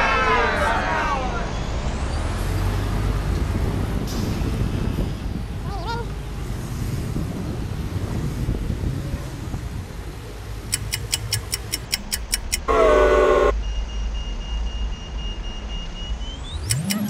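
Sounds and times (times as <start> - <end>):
bicycle freewheel ticking: 10.7 - 12.7
loud horn-like blare: 12.7 - 13.6.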